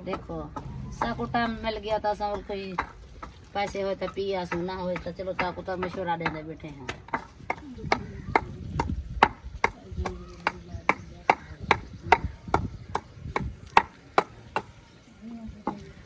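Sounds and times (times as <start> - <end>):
wooden pestle pounding in mortar: 2.2 - 14.8.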